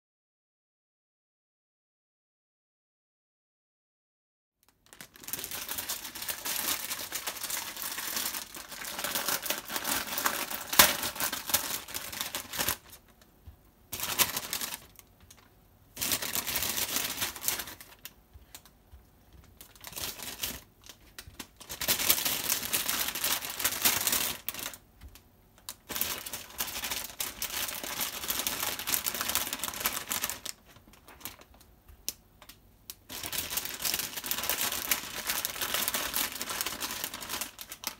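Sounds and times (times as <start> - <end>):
mushrooms rustling on plastic board: 4.9 - 31.6.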